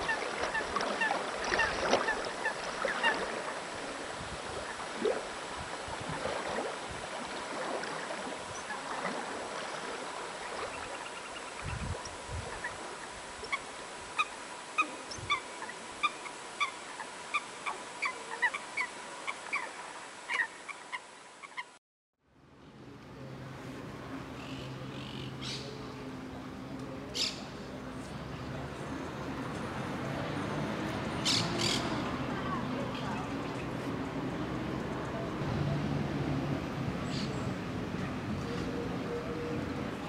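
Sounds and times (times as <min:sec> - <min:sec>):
background noise wash: 0:00.0 - 0:40.0
birds calling: 0:24.4 - 0:25.9, 0:27.1 - 0:27.6, 0:31.0 - 0:32.2.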